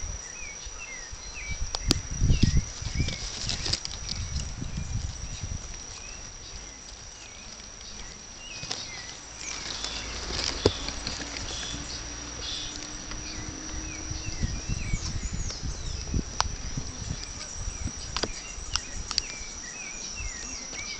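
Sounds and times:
bird chirps: 0:00.0 - 0:20.9
high insect buzz: 0:00.0 - 0:20.9
low rustling: 0:02.0 - 0:20.9
sharp clicks: 0:15.0 - 0:19.6.

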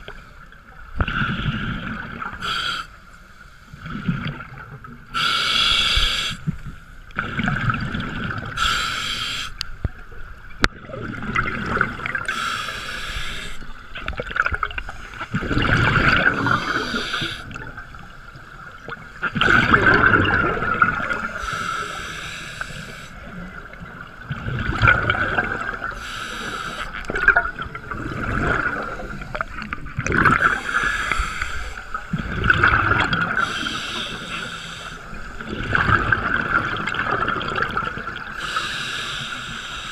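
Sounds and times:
regulator hiss on inhale: 0:02.4 - 0:03.8, 0:05.2 - 0:06.6, 0:08.6 - 0:09.6, 0:12.3 - 0:13.8, 0:16.5 - 0:17.6, 0:21.3 - 0:23.3, 0:25.9 - 0:27.1, 0:30.4 - 0:32.1, 0:33.4 - 0:35.3, 0:38.3 - 0:39.9
exhaled bubbles rushing: 0:07.2 - 0:08.6, 0:10.7 - 0:12.3, 0:14.0 - 0:17.9, 0:18.8 - 0:21.4, 0:23.3 - 0:26.0, 0:27.1 - 0:31.2, 0:32.0 - 0:33.6, 0:35.1 - 0:38.3.

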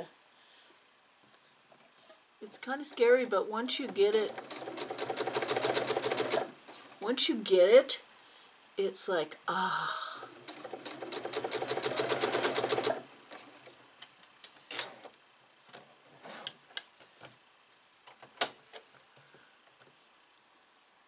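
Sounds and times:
sewing machine stitching: 0:02.9 - 0:06.6, 0:10.3 - 0:13.4.

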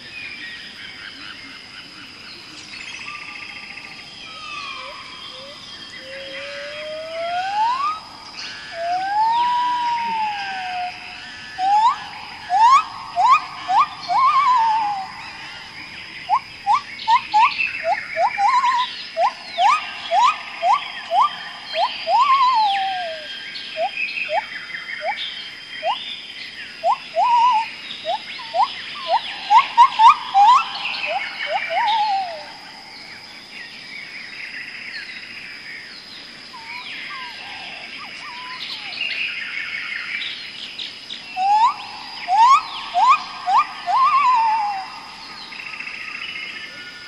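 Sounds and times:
high insect whine: 0:00.0 - 0:47.0
soft birdsong: 0:00.0 - 0:47.0
bird whistling calls: 0:04.3 - 0:26.1, 0:26.8 - 0:32.6, 0:36.6 - 0:39.4, 0:41.3 - 0:46.3.

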